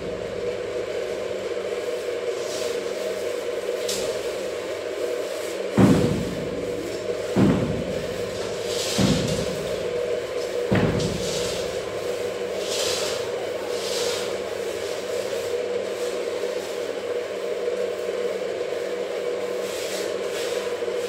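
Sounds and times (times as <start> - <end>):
steady hum: 0.0 - 21.0
paintbrushes scrubbing concrete: 1.8 - 17.5, 19.5 - 21.0.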